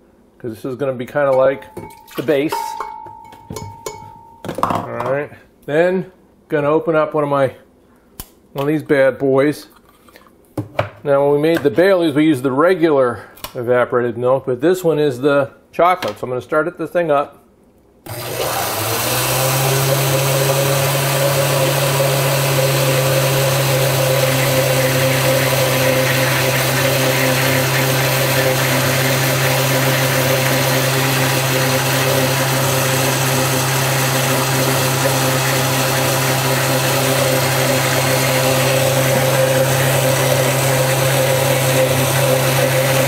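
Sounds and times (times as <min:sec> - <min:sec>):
blender running: 0:18.1 - 0:43.0.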